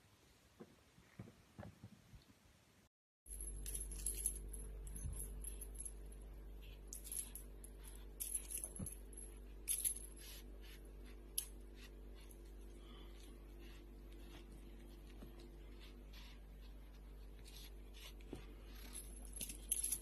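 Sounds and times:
high metallic clinking: 0:03.3 - 0:06.2, 0:06.9 - 0:10.3, 0:18.7 - 0:20.0
low hum: 0:03.3 - 0:20.0.

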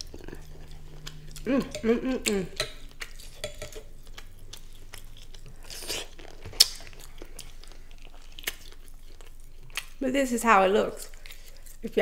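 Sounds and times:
person chewing: 0:00.0 - 0:10.0, 0:11.1 - 0:11.8
person humming: 0:01.4 - 0:02.6.

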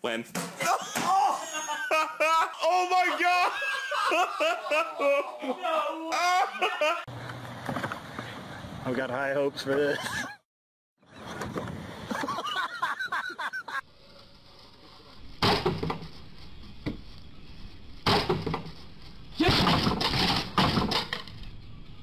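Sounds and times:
wooden boards cracking and breaking: 0:19.4 - 0:21.3.

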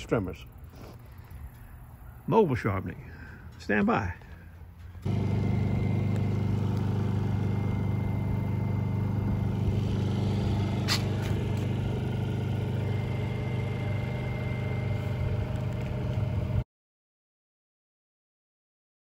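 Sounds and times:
motor humming: 0:05.0 - 0:16.6.

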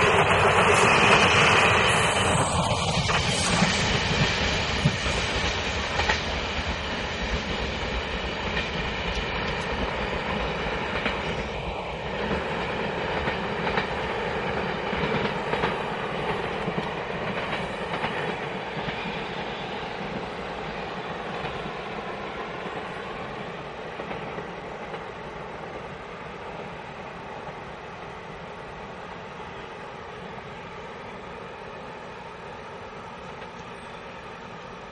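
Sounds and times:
train wheels clattering over rail joints: 0:12.1 - 0:20.3.

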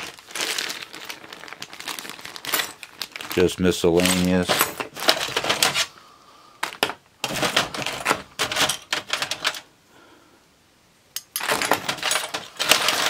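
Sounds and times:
metal parts clinking and clattering: 0:02.2 - 0:03.4, 0:04.0 - 0:05.9, 0:06.6 - 0:09.7, 0:11.2 - 0:13.0.

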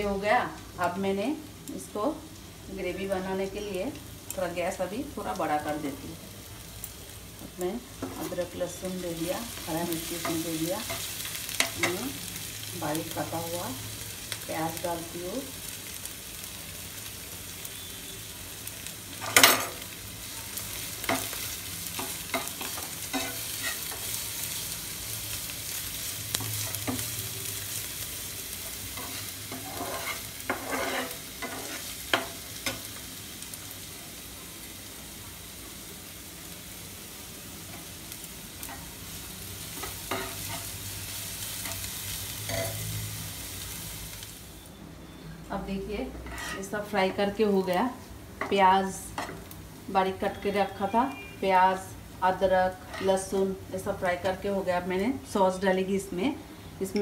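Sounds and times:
vegetables sizzling in oil: 0:00.0 - 0:57.0
spatula scraping and knocking pan: 0:29.0 - 0:32.8, 0:46.2 - 0:46.7.

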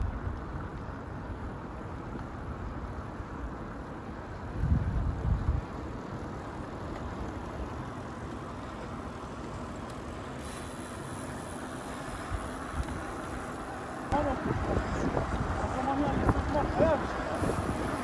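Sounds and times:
road noise: 0:00.0 - 0:18.0
wind buffeting microphone: 0:04.4 - 0:06.4, 0:14.1 - 0:18.0.

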